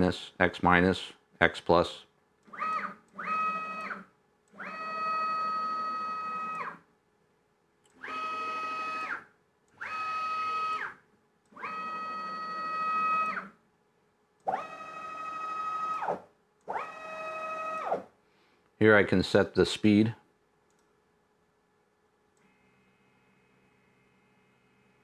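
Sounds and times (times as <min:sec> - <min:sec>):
stepper motors whining: 0:04.6 - 0:06.8, 0:14.5 - 0:18.0.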